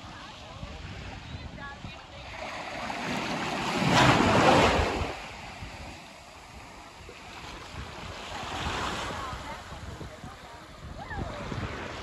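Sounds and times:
small waves washing on sand: 0.0 - 12.0.

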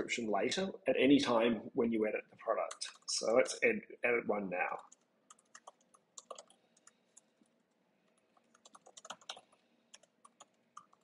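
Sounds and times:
keyboard typing: 4.8 - 11.0.

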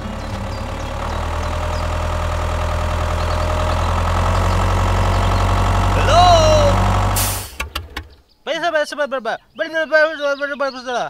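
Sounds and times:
tractor engine running: 0.0 - 8.3.

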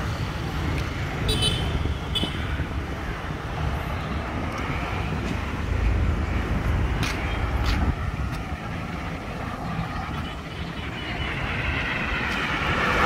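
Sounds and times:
cars driving past: 0.0 - 13.0.

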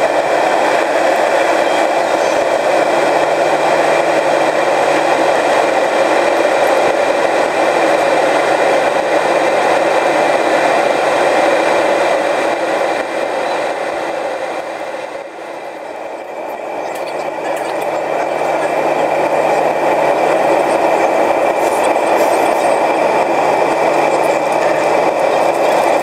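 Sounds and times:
airliner cabin noise: 0.0 - 26.0.

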